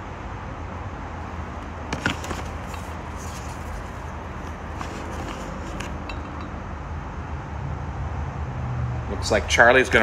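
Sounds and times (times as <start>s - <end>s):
book pages rustling and turning: 1.3s - 6.1s.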